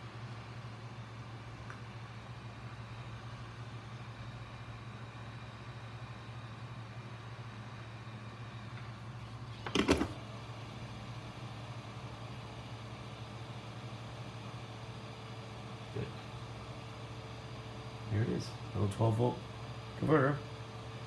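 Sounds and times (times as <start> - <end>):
heat gun set down clunk: 9.6 - 10.2.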